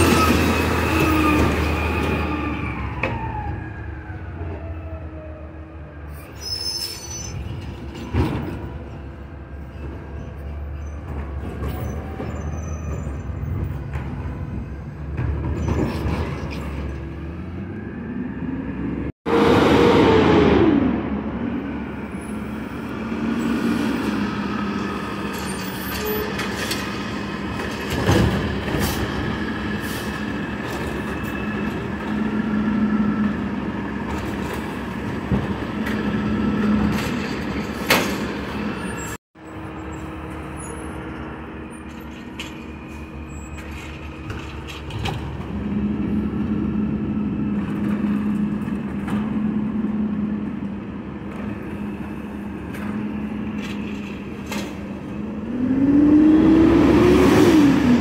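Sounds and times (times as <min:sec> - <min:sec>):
garbage truck engine and hydraulics: 0:00.0 - 0:58.0
air brakes hissing and squealing: 0:06.0 - 0:08.6, 0:09.6 - 0:14.9, 0:22.1 - 0:27.5, 0:28.6 - 0:32.1, 0:36.7 - 0:45.0.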